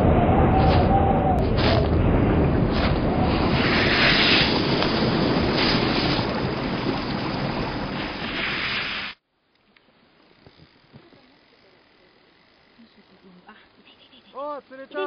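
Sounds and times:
rushing wind-like whoosh: 0.0s - 8.4s.

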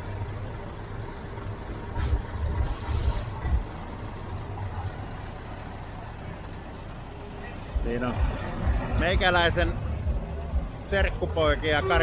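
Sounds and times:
truck diesel engine running: 0.0s - 12.0s
air brake hiss: 2.0s - 3.4s.

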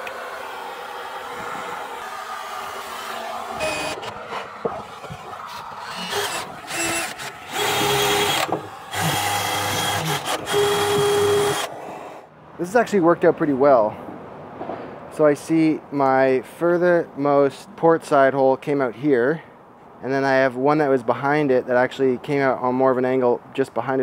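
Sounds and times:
power drill boring fibreglass: 0.0s - 11.8s
vacuum running: 0.0s - 12.1s.

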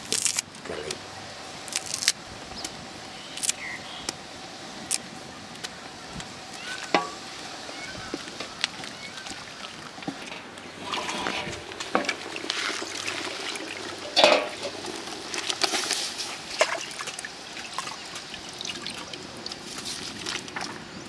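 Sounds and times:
utensils clinking against pot: 14.1s - 14.7s.

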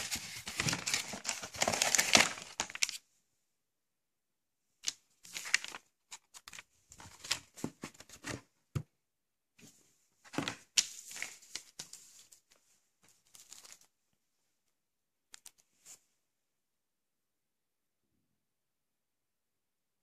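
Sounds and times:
paper rustling and crinkling: 0.0s - 3.0s, 4.8s - 8.5s, 9.6s - 14.0s.

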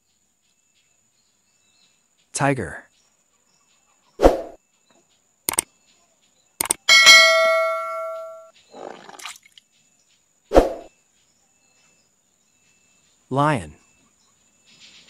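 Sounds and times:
sharp clicks: 5.5s - 5.7s, 6.6s - 6.9s
bright bell chime: 6.9s - 8.5s
toy splashing into water: 9.0s - 9.6s.

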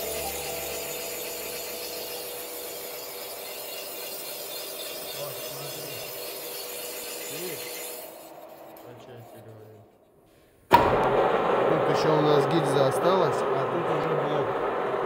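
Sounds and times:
machine drive tones: 0.0s - 9.2s
boring machine cutting metal: 0.0s - 9.6s.

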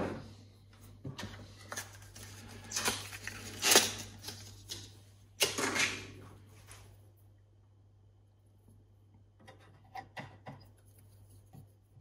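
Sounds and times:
plastic packaging rustles and clicks: 1.5s - 5.0s.

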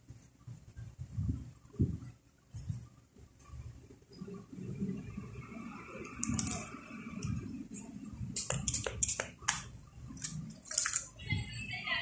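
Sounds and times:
sharp clicks and taps: 8.4s - 11.0s
rustling handling noise: 10.1s - 11.2s.

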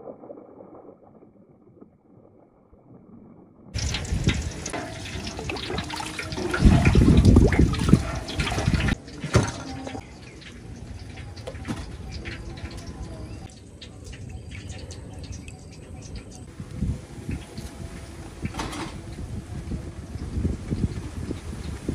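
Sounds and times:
wood fire crackling: 3.7s - 9.2s
small water splashes and drips: 3.7s - 16.5s.

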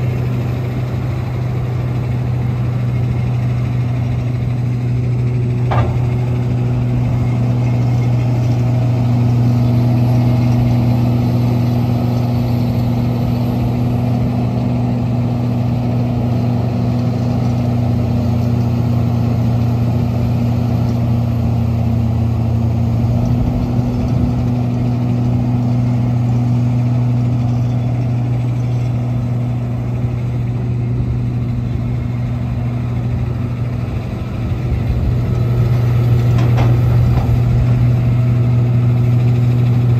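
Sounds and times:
excavator diesel engine humming: 0.0s - 39.9s.

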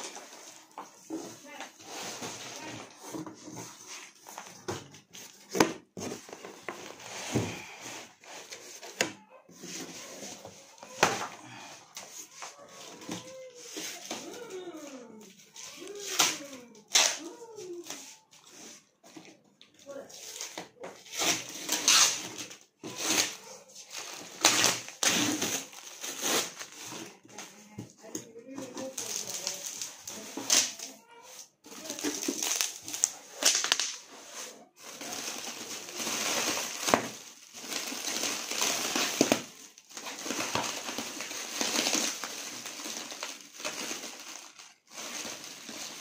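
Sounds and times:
packing tape ripping: 15.8s - 17.3s, 21.0s - 26.9s, 31.8s - 34.1s, 34.9s - 46.0s.

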